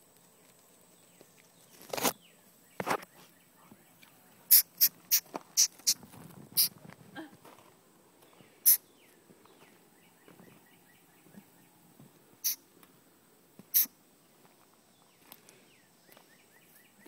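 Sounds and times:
baby opossum sneeze-like calls: 4.5 - 6.0, 8.6 - 8.8, 12.4 - 12.6, 13.7 - 13.9.

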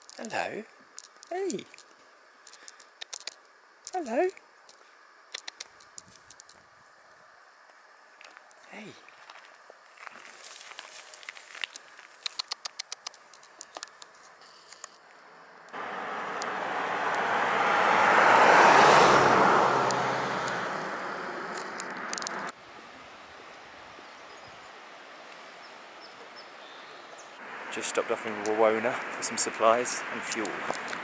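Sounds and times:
steps crackling on dry forest litter: 7.7 - 15.2
car passing by: 15.8 - 22.6.

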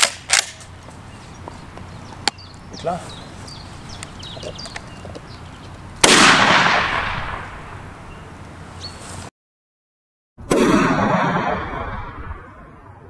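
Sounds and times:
shotgun blast: 6.0 - 7.8, 10.5 - 12.7.

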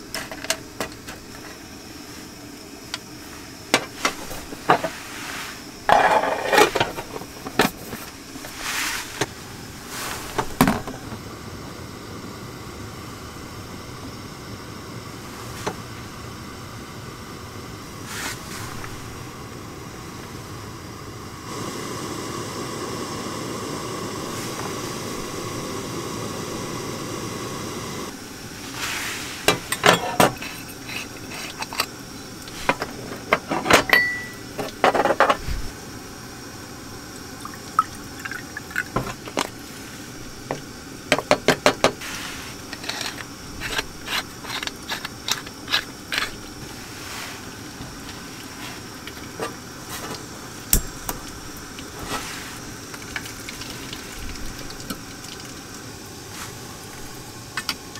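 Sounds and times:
gas heater hissing: 0.0 - 57.9
water pouring: 37.1 - 39.6, 51.4 - 57.2.

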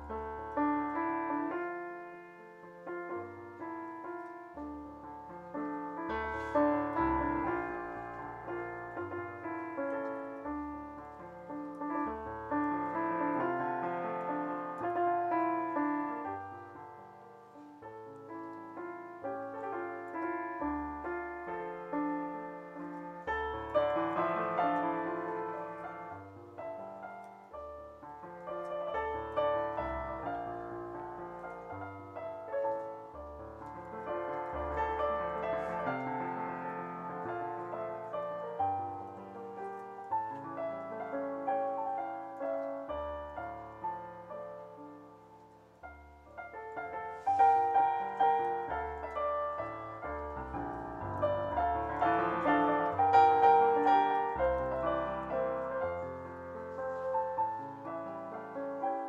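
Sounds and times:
digital piano melody: 0.0 - 59.0.

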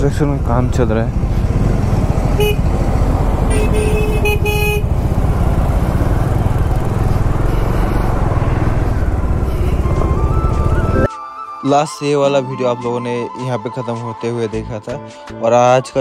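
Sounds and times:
motorcycle engine rumble: 0.0 - 11.1
vehicle horn tooting: 2.4 - 2.7, 3.4 - 5.0.

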